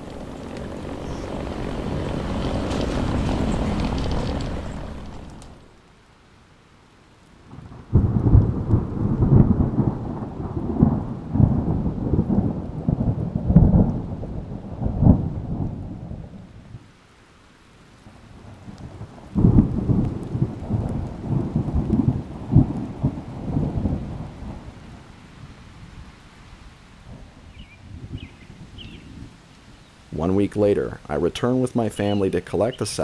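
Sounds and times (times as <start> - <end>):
rolling thunder: 0.0 - 5.7, 7.5 - 16.9, 18.4 - 26.1, 27.0 - 29.8.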